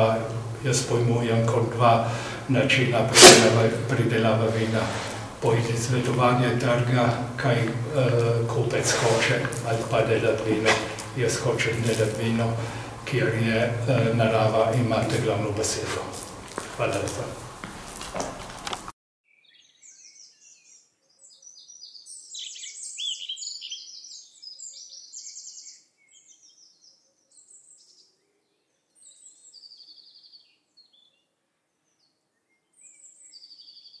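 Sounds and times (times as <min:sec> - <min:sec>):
songbirds singing: 0:19.3 - 0:34.0.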